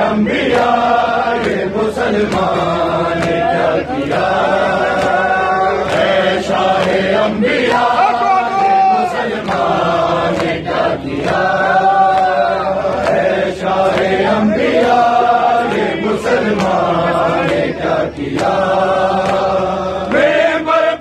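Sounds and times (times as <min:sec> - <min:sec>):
crowd of men chanting: 0:00.0 - 0:21.0
hands slapping on chests: 0:01.4 - 0:03.5, 0:04.9 - 0:07.1, 0:11.2 - 0:19.5.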